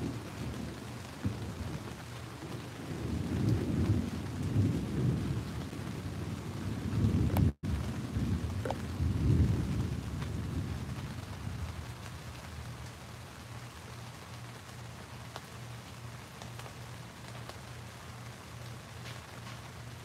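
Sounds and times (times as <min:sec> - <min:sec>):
low thunder rumbling: 0:00.0 - 0:12.6
heavy rain pouring: 0:00.0 - 0:20.0.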